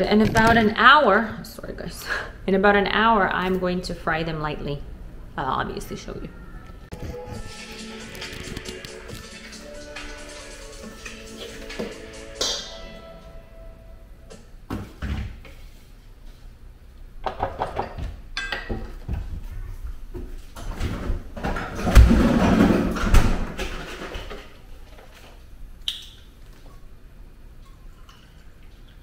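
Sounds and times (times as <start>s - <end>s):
dishes clattering: 17.3s - 19.0s.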